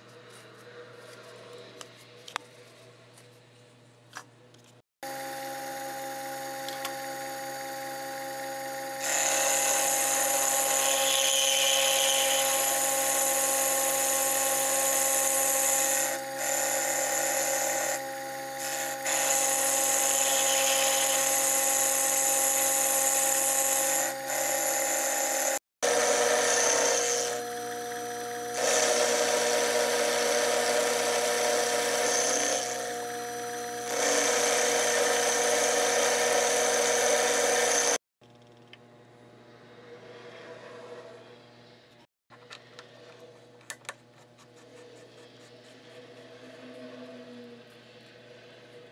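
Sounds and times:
mill motor whine: 5.0s - 38.0s.

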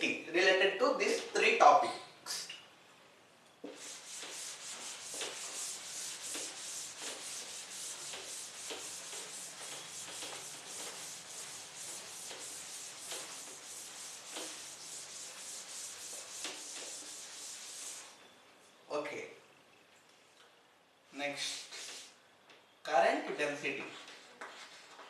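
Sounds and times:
scratchy rubbing on writing surface: 3.7s - 18.1s, 23.9s - 25.0s.

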